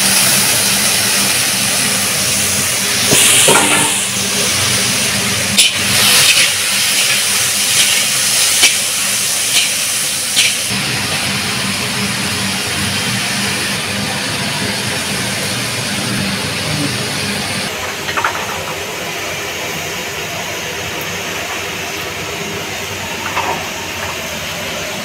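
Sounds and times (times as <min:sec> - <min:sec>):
potatoes sizzling in hot oil: 0:00.0 - 0:17.6
gas burner hissing: 0:00.0 - 0:25.0.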